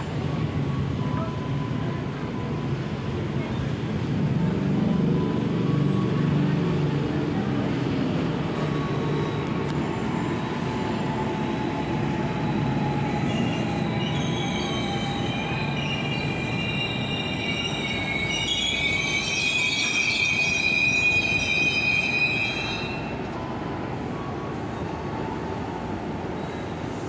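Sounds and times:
train wheels rumbling on rail: 0:00.0 - 0:27.0
train wheels squealing: 0:07.8 - 0:23.3, 0:24.0 - 0:27.0.

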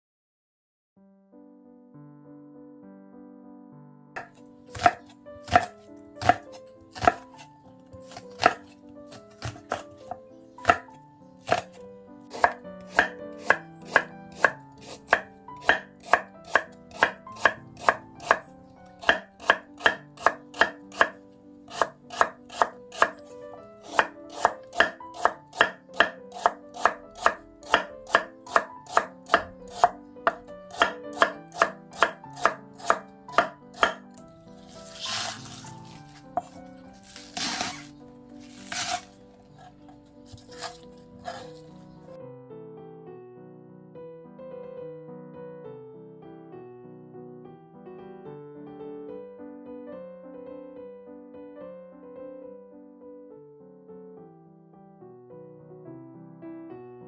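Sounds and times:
knife chopping on wooden board: 0:04.2 - 0:41.8.

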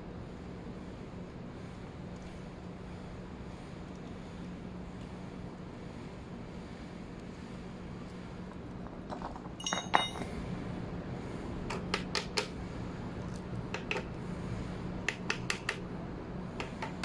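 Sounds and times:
metallic clinks of brake parts: 0:09.1 - 0:10.3.

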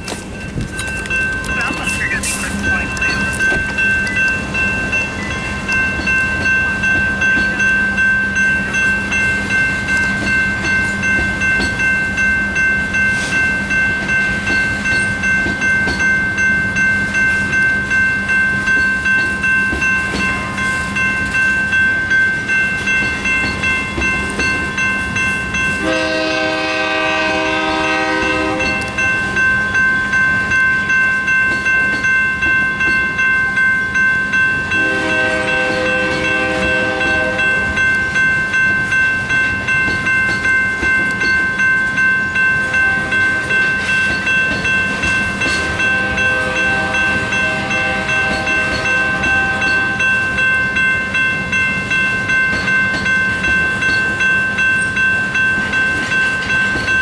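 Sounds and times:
freight train rumbling: 0:00.0 - 0:57.0
railroad crossing bells ringing: 0:00.0 - 0:57.0
locomotive horn: 0:25.8 - 0:29.0, 0:34.8 - 0:37.7, 0:42.7 - 0:43.4, 0:45.6 - 0:50.1.

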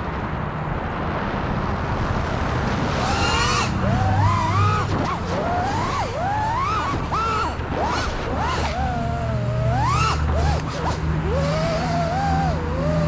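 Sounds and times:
drone propellers rushing hiss: 0:02.3 - 0:13.0
drone motors whining: 0:02.8 - 0:13.0.

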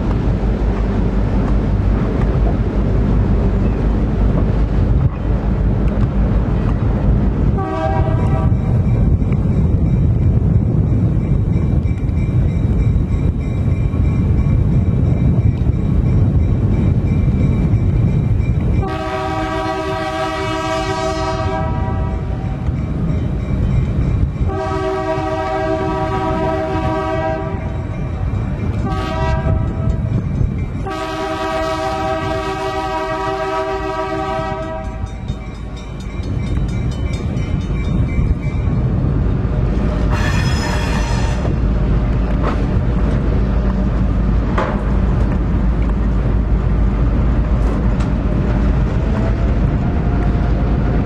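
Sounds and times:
locomotive and wheels rumbling: 0:00.0 - 0:51.0
locomotive air horn blasts: 0:07.6 - 0:08.6, 0:18.8 - 0:22.4, 0:24.5 - 0:27.8, 0:28.8 - 0:29.9, 0:30.8 - 0:35.2, 0:40.1 - 0:41.5.

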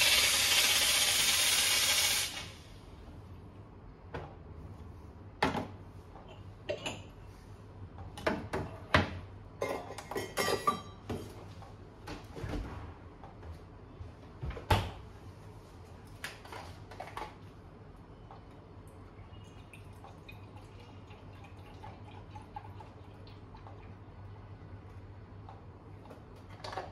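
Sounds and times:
cups clinking on steel counter: 0:06.2 - 0:07.2, 0:09.6 - 0:11.3.

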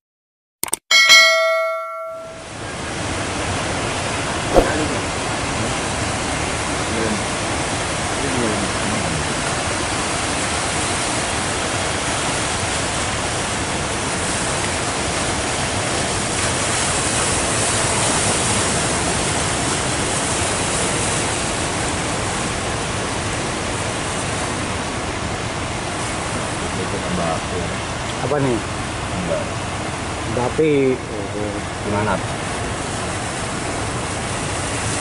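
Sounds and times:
heavy surf breaking: 0:04.4 - 0:06.2.

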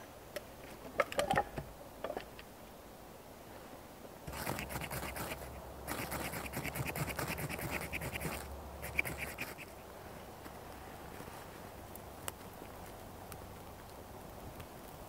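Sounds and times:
striker scraping fire steel: 0:04.3 - 0:09.8.

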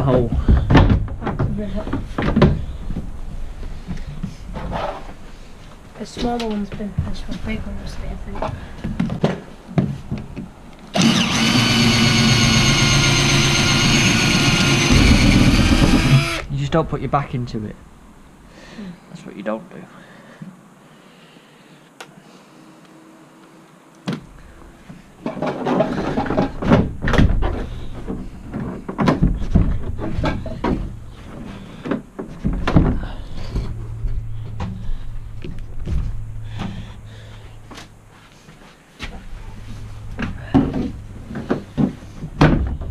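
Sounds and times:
plastic panels knocking and rattling: 0:00.1 - 0:02.7, 0:25.2 - 0:33.2
power drill drilling: 0:10.9 - 0:16.5.

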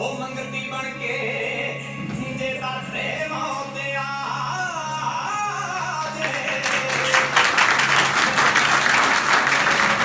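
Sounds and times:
person singing: 0:00.0 - 0:07.6
low drone of background music: 0:00.0 - 0:10.0
audience applause: 0:06.2 - 0:10.0.

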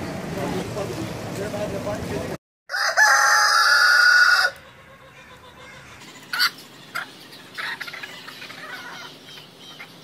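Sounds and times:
rooster crowing: 0:02.7 - 0:04.7.

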